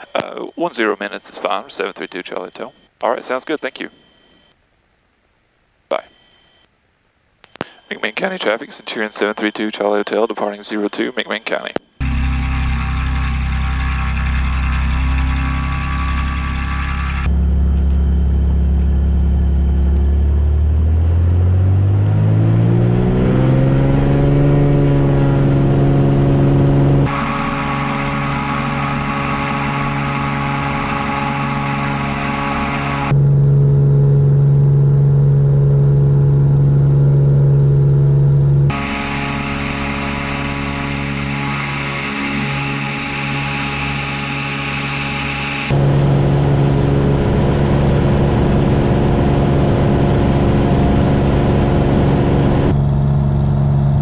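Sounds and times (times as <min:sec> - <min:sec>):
light aircraft engine and propeller: 0:12.0 - 0:21.0, 0:24.2 - 0:54.0.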